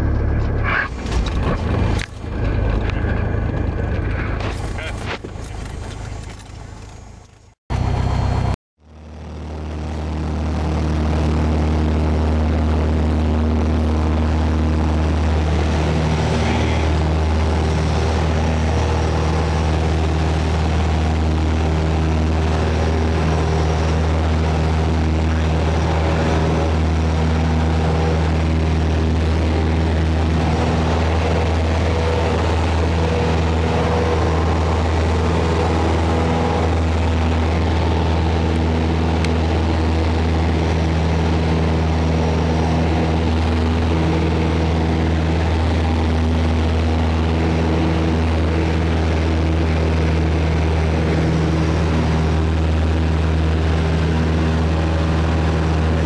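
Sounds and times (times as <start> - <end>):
propeller airplane engine drone: 0.0 - 56.0.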